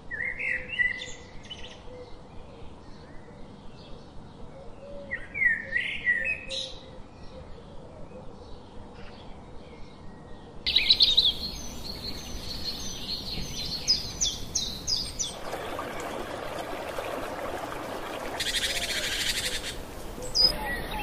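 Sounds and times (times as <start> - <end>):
birds chirping: 10.7 - 21.0
splashing water: 13.4 - 20.5.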